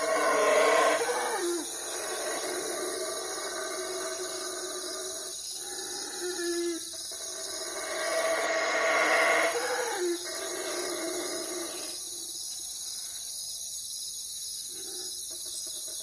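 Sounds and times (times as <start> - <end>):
animal call: 0.0 - 12.0.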